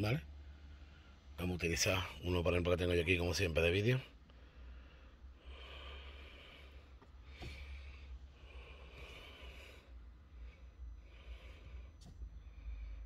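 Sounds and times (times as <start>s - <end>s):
low steady hum: 0.0s - 13.0s
faint breathing: 0.3s - 1.4s, 4.1s - 13.0s.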